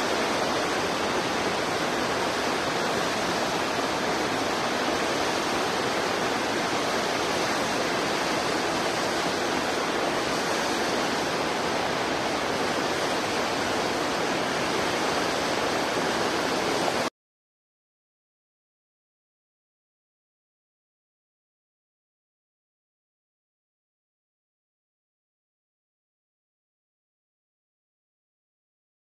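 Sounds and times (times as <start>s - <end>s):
steady rushing noise: 0.0s - 17.1s.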